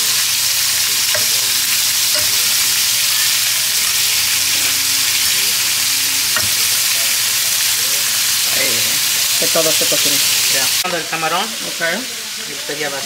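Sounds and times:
shrimp sizzling in oil: 0.0s - 13.0s
fork clicking against pan: 1.1s - 2.6s.

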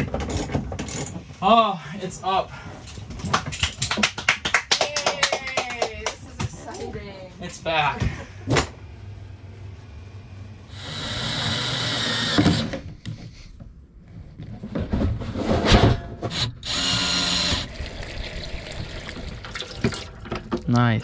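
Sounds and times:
cordless drill into wood: 10.7s - 12.8s, 16.3s - 17.7s.

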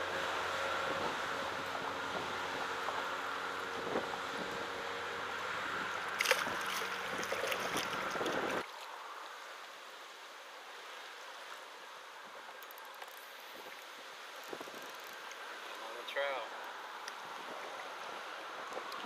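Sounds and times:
wind and water hiss: 0.0s - 19.0s
water slapping against kayak hull: 6.2s - 8.8s.

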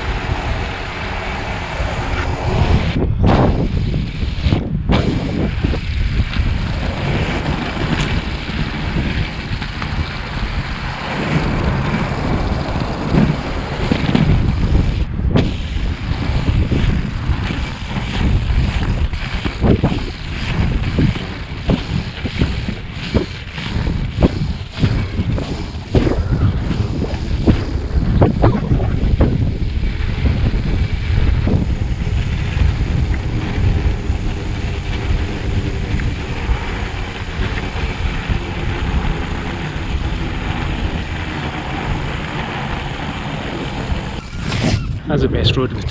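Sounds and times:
inline skates rolling on asphalt: 0.0s - 45.1s
wind buffeting microphone: 0.0s - 45.9s.

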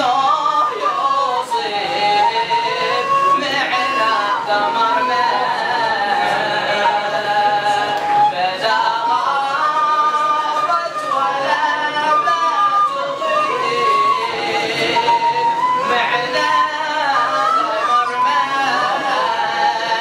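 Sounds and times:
men chanting in unison: 0.0s - 15.2s, 15.8s - 20.0s
wooden flute melody: 0.0s - 20.0s.

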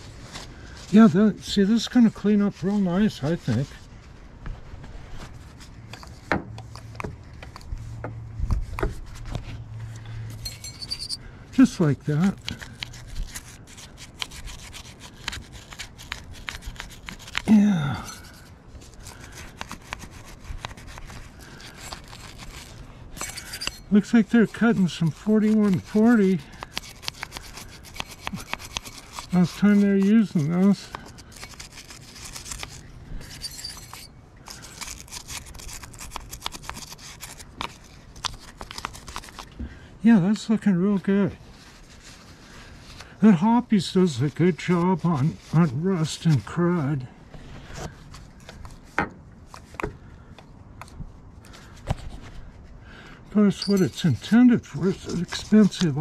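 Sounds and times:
wire brush scrubbing metal: 19.1s - 37.1s, 53.4s - 56.0s.

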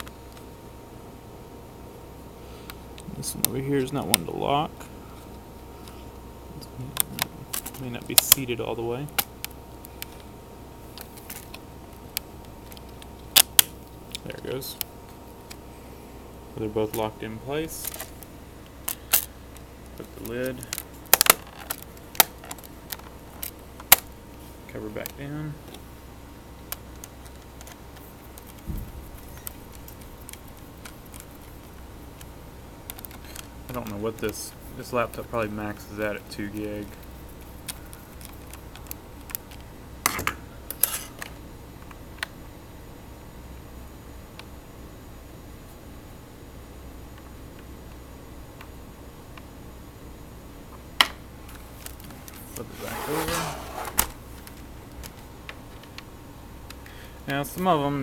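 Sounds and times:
laptop scraping on desk: 52.6s - 54.2s.

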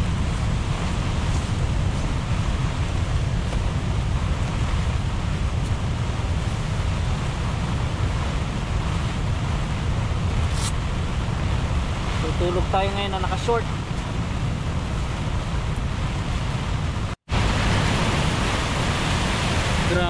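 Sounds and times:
sea surf: 0.0s - 20.0s
strong wind buffeting microphone: 0.0s - 20.0s.

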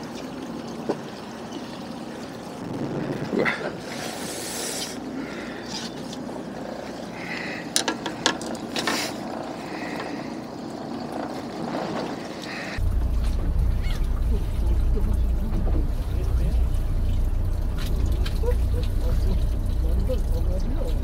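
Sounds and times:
steady rushing noise: 2.5s - 4.8s.

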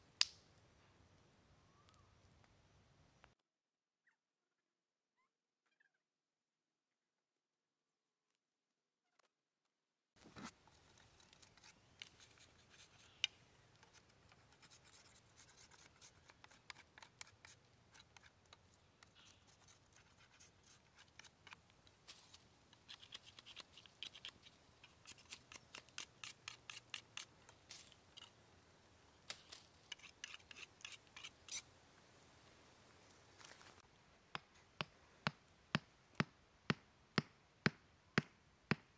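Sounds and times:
knife scraping bark: 10.4s - 28.4s, 29.4s - 31.7s.

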